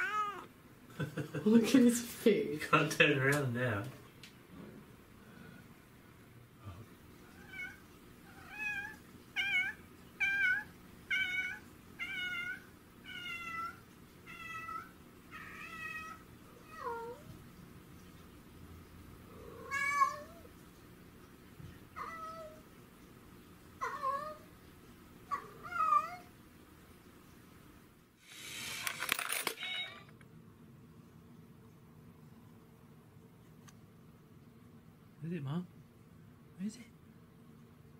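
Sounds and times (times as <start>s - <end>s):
cat meowing: 0.0s - 0.5s, 7.3s - 17.3s, 19.4s - 20.5s, 25.3s - 26.3s.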